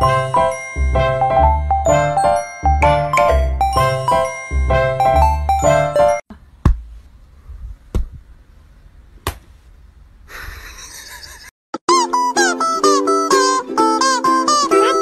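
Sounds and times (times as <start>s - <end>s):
instrumental music with steady beat: 0.0s - 6.2s.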